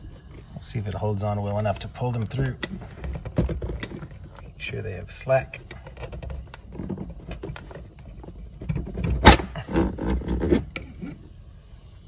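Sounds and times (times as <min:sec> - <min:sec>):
wires scraping against carpet: 0:06.2 - 0:11.4.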